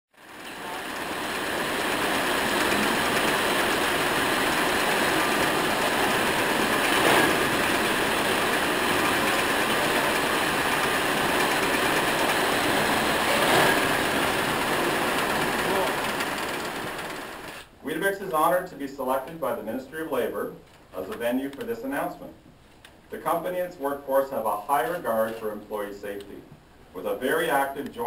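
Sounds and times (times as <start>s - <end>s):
factory machinery hiss and hum: 0.3s - 17.7s.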